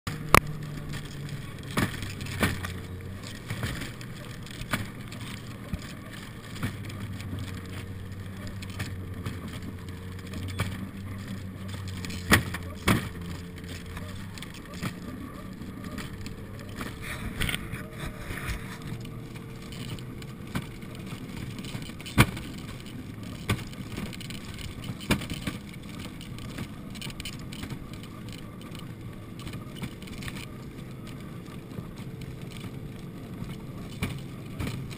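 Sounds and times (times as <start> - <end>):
snowmobile engine running: 0.1 - 34.9
wooden sled clattering: 0.1 - 34.9.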